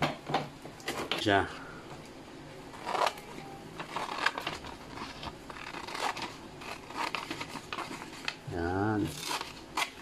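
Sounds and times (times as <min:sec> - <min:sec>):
paper rustling and crinkling: 0:02.7 - 0:10.0.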